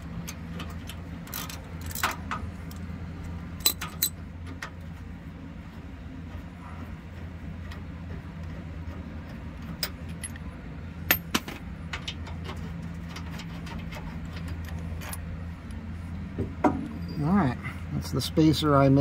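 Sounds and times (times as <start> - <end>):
steady low hum: 0.0 - 19.0
metal hardware clinking: 3.6 - 4.2.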